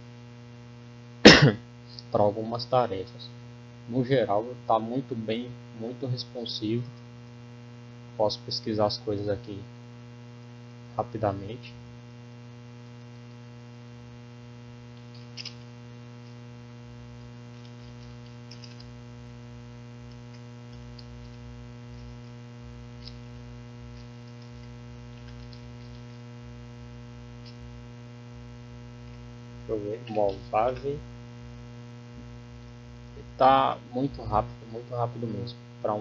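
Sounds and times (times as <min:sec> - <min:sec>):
electrical mains hum: 0:00.0 - 0:36.0
laptop keyboard typing: 0:17.6 - 0:18.9.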